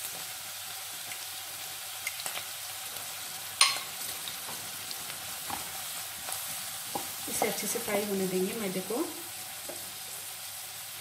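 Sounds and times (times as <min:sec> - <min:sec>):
vegetables sizzling in butter: 0:00.0 - 0:11.0
wooden spatula stirring: 0:04.3 - 0:07.8.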